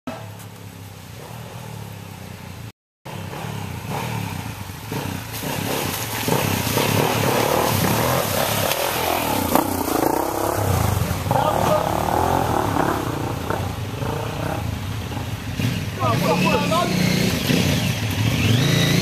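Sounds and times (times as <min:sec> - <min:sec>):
dirt bike engine: 0:00.1 - 0:19.0
water splashing: 0:04.4 - 0:16.4.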